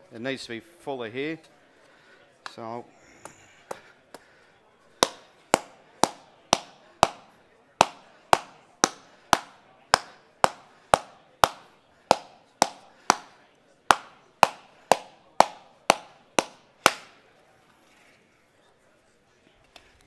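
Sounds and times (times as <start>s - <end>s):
rubber mallet striking aluminium: 5.0s - 17.2s.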